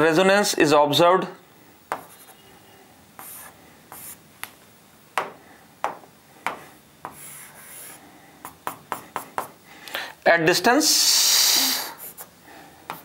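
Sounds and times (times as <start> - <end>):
stylus scratching on screen: 2.0 - 4.2
stylus tapping on screen: 5.2 - 7.2.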